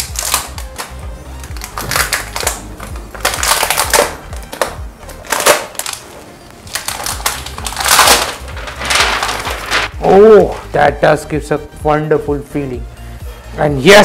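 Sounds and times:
plastic film peeling and rustling: 0:00.0 - 0:10.7.

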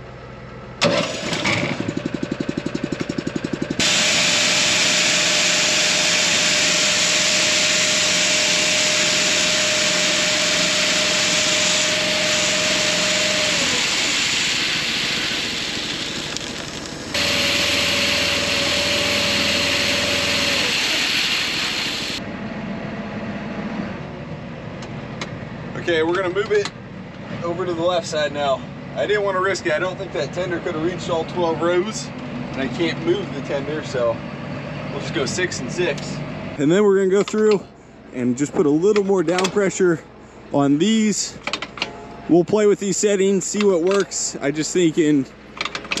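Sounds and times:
tractor hum from inside cab: 0:00.0 - 0:25.8
small gas engine running: 0:00.8 - 0:22.3.

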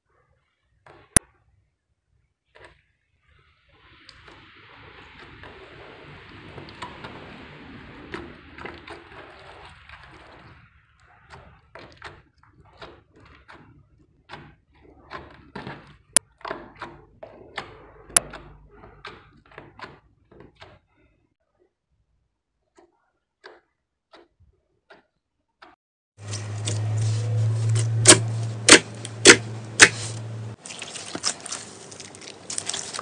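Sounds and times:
slime crackling hiss: 0:26.2 - 0:33.0.

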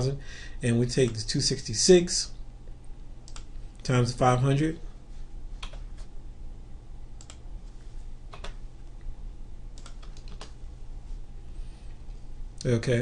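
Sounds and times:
low steady hum: 0:00.0 - 0:13.0
mouse clicks: 0:03.2 - 0:03.5
keyboard typing: 0:09.8 - 0:10.6.

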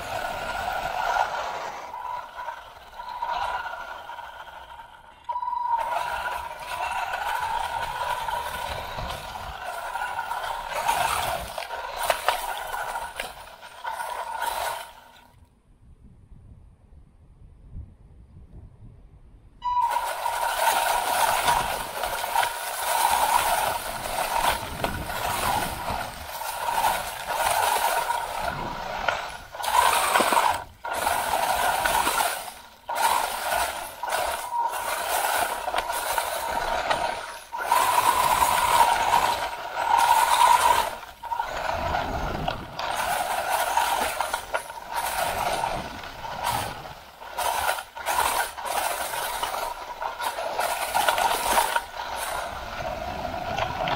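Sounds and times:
toy car electric motor whining: 0:00.0 - 0:15.4, 0:19.6 - 0:53.9
tyres rattling on rough ground: 0:00.0 - 0:15.4, 0:19.6 - 0:53.9.

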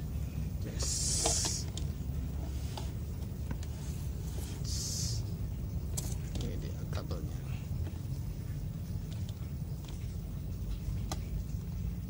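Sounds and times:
steady low hum: 0:00.0 - 0:12.0
plastic hissing scrape: 0:00.7 - 0:01.8.

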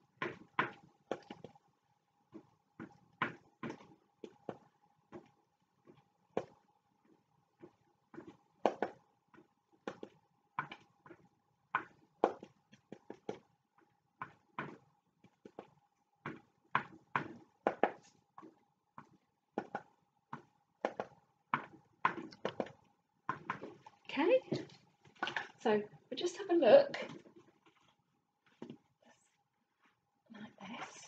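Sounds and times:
cardboard tapping on board: 0:07.6 - 0:11.2, 0:16.3 - 0:23.8.

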